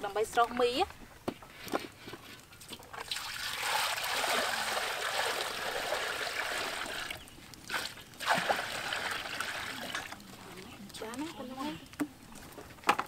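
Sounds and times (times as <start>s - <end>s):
water running and splashing: 2.6s - 12.4s.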